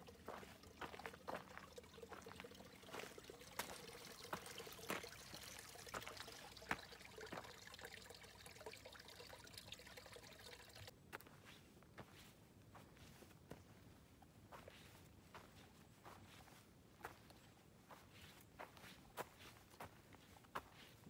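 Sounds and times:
faint trickle of water: 0.0s - 11.0s.

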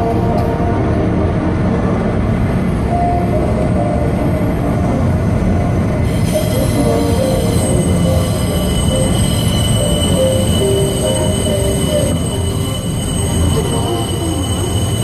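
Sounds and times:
train wheels rumbling on track: 0.0s - 15.0s
high-pitched wheel squeal: 6.0s - 15.0s.

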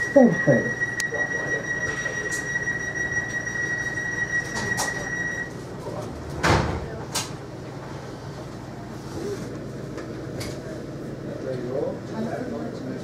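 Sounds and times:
steady high tone: 0.0s - 5.6s.

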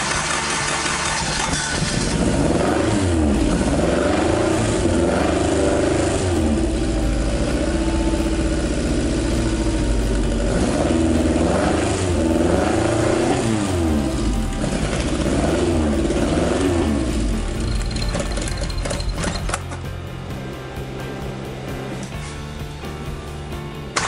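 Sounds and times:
engine revving: 1.8s - 19.6s.

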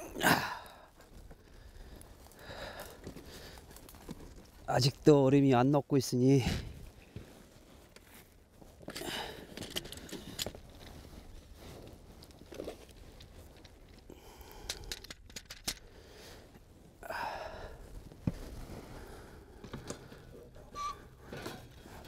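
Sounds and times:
dry reeds rustling and crackling: 0.9s - 17.2s.

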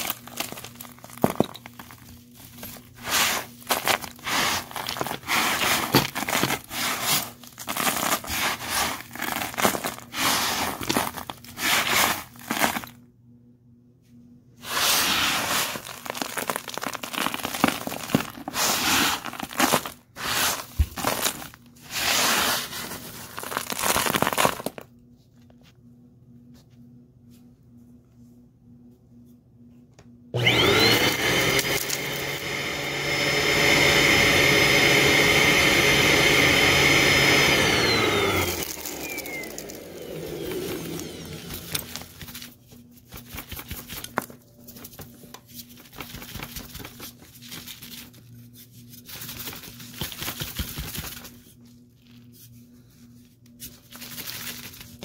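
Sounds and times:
hand crunching dry debris: 0.0s - 12.9s, 15.0s - 24.8s, 38.3s - 44.9s
vacuum cleaner motor whine: 14.6s - 15.8s, 30.3s - 42.2s.

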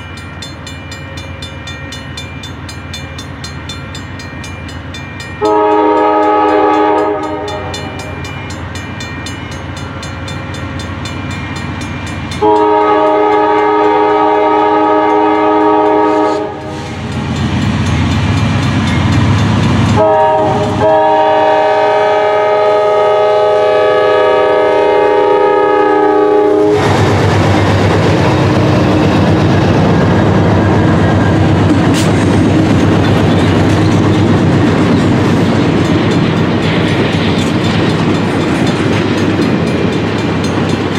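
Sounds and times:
locomotive air horn blasts: 5.4s - 8.2s, 12.4s - 17.0s, 19.9s - 26.9s
flatcars clattering over rail joints: 31.6s - 40.9s.

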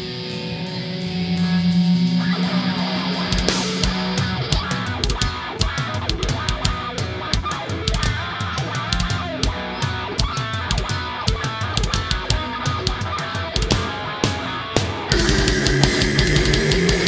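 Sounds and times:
cymbal hits: 0.0s - 5.0s, 15.1s - 17.0s
distorted electric guitars: 0.0s - 17.0s
drum kit beat: 0.0s - 17.0s.

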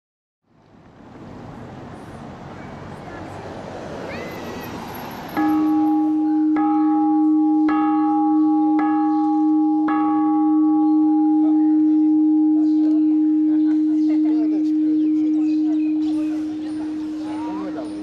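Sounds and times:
bell clanging: 5.4s - 18.0s.

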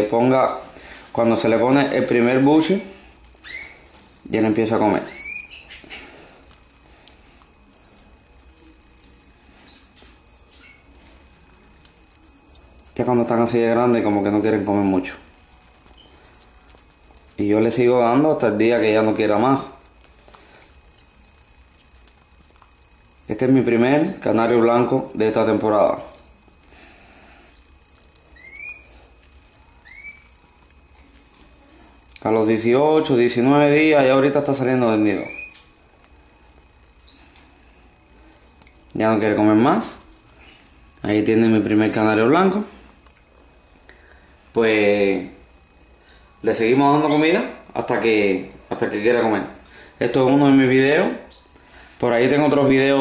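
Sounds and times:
bird nestling begging cheeps: 2.1s - 2.6s, 4.3s - 5.9s, 7.7s - 8.8s, 10.2s - 10.8s, 12.1s - 13.0s, 14.0s - 14.7s, 16.0s - 16.6s, 18.1s - 19.0s, 20.5s - 21.4s, 22.8s - 24.3s, 24.9s - 26.4s, 27.1s - 29.1s, 31.3s - 32.0s
chick begging peeps: 12.1s - 13.0s, 14.3s - 14.6s, 16.0s - 16.6s, 20.5s - 21.4s, 27.1s - 29.0s, 31.3s - 32.0s.

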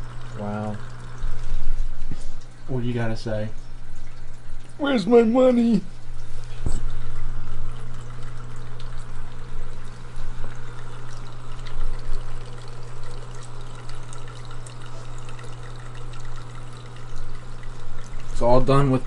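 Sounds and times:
aquarium water trickling and splashing: 0.0s - 19.0s.

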